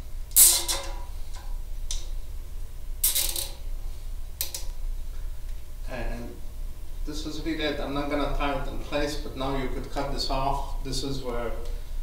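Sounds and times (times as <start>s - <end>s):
zip tie ratcheting tight: 3.0s - 3.6s.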